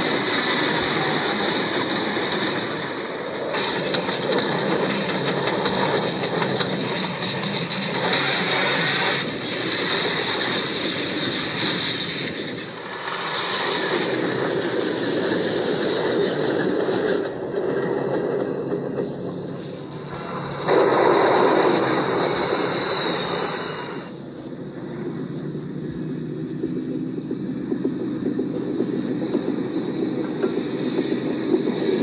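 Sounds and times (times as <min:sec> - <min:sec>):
locomotive engine and rail noise: 0:00.0 - 0:32.0.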